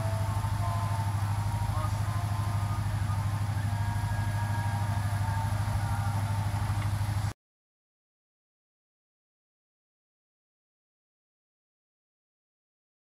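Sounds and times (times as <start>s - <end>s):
boat engine running: 0.0s - 7.4s.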